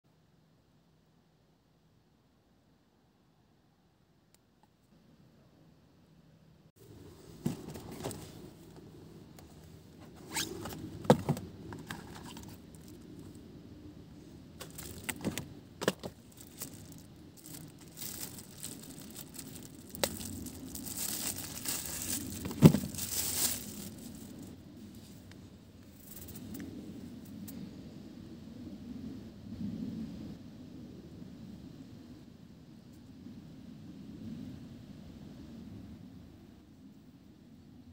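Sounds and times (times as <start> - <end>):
cardboard rustling: 7.2 - 8.8, 9.4 - 13.3, 14.6 - 24.5.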